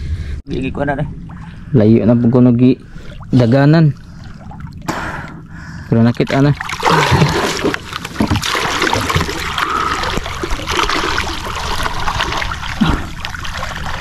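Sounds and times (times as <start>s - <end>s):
water splashing from swimming: 2.9s - 14.0s.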